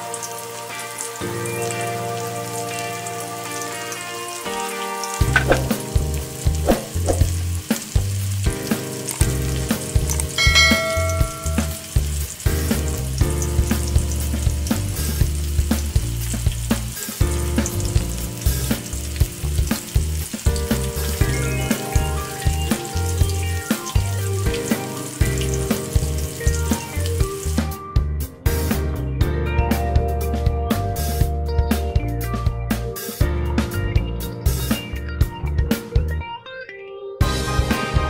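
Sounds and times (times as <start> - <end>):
chicken sizzling in oil: 0.0 - 27.9, 37.2 - 38.0
background music with beat: 0.0 - 36.5, 37.2 - 38.0.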